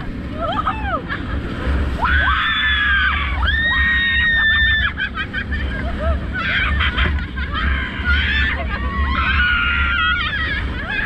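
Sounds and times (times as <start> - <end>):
rushing wind and water: 0.0 - 11.0
people screaming: 1.9 - 11.0.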